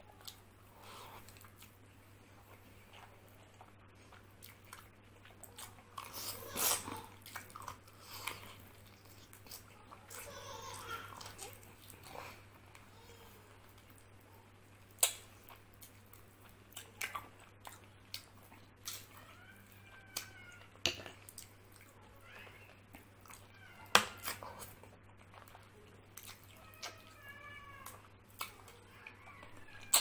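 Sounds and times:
wet chewing and lip-smacking: 0:14.9 - 0:22.0, 0:22.6 - 0:27.2.

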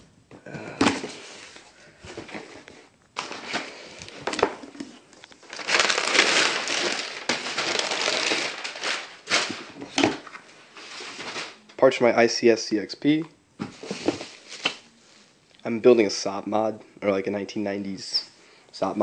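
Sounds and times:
packing paper crinkling: 0:03.2 - 0:11.6.

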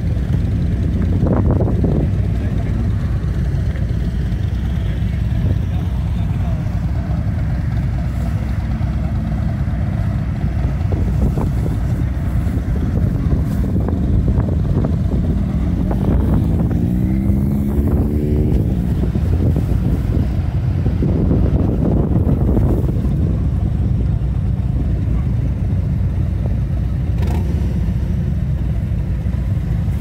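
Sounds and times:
motorcycle engine idling: 0:00.0 - 0:30.0
engine note rising: 0:04.6 - 0:23.5.

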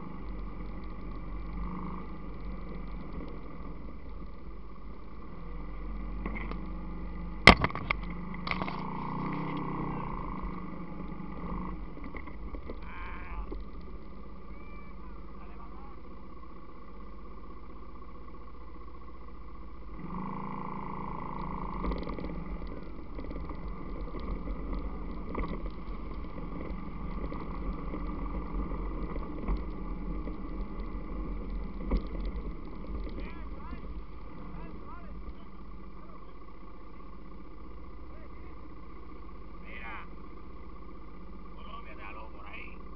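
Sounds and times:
atv engine running: 0:00.0 - 0:42.9
knocks from rough ground: 0:07.4 - 0:09.6, 0:21.8 - 0:28.0.

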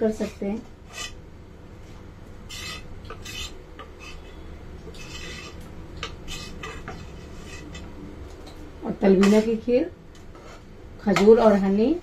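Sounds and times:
steady low hum: 0:00.0 - 0:12.0
metal ladle scraping a pot: 0:00.2 - 0:01.2, 0:02.5 - 0:07.9, 0:09.2 - 0:09.5.

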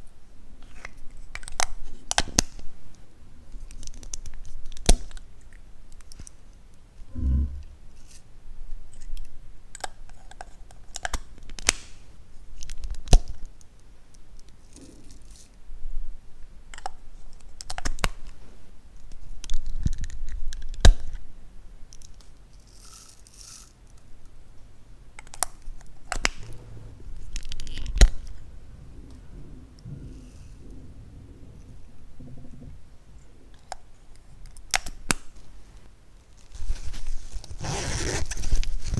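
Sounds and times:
low thump: 0:07.1 - 0:07.8.

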